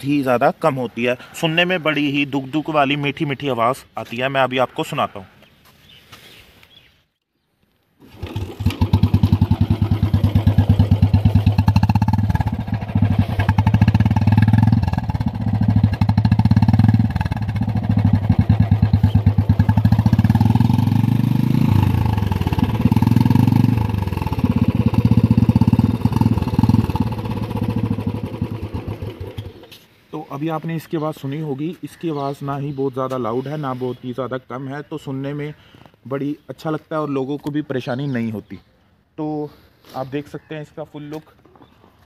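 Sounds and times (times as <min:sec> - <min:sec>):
motorcycle engine thumping: 0:08.2 - 0:29.8.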